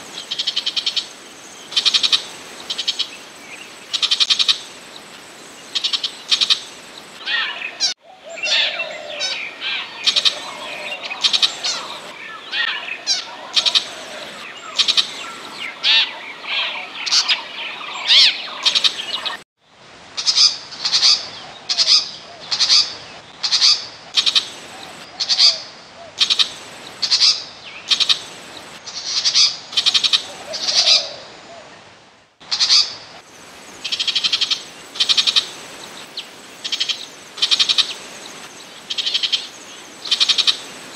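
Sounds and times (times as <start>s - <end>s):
recorded bird calls: 0.0s - 19.4s, 20.2s - 40.9s.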